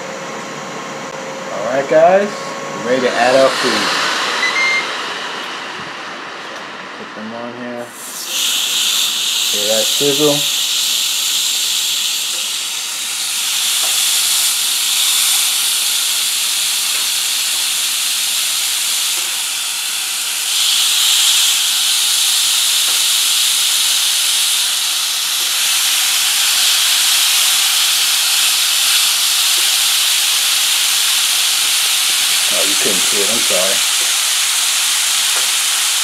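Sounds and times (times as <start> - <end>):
burger patties sizzling on grill: 8.0 - 36.0.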